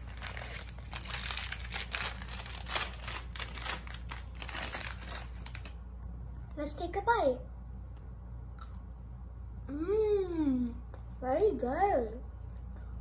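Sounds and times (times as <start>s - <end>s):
plastic wrapper crinkling: 0.0s - 5.8s.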